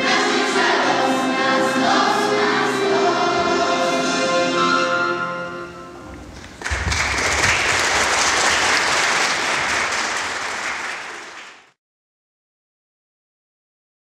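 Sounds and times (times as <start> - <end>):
audience applauding: 6.2 - 11.8.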